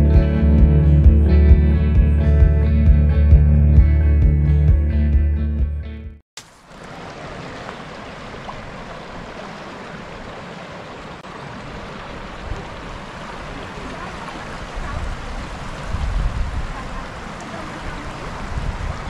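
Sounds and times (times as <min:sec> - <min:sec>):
low rumbles: 0:00.0 - 0:06.2
river rushing over rapids: 0:06.4 - 0:19.0.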